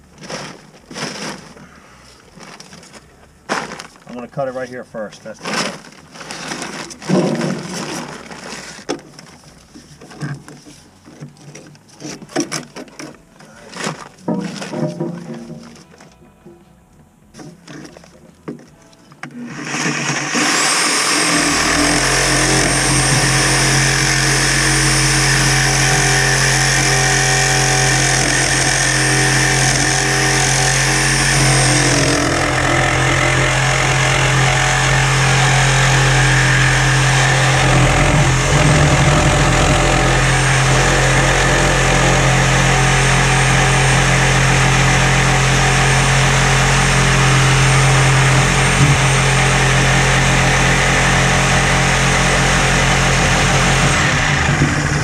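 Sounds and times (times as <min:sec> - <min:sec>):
reciprocating saw cutting pipe: 0:19.4 - 0:55.0.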